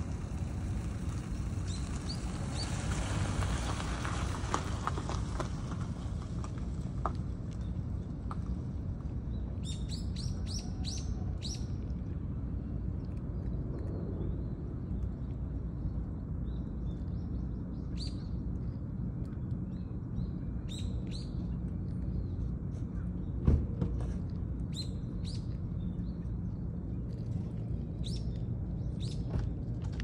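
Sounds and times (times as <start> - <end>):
low outdoor rumble: 0.0 - 30.0
small birds chirping: 9.3 - 11.8, 24.7 - 26.7, 27.9 - 29.4.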